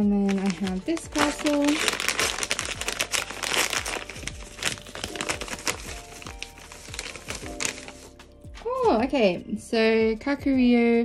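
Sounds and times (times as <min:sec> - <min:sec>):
hand rummaging inside envelope: 0:00.0 - 0:08.2
paper mailer envelope crinkling: 0:00.0 - 0:08.2
background music with steady beat: 0:00.0 - 0:11.0.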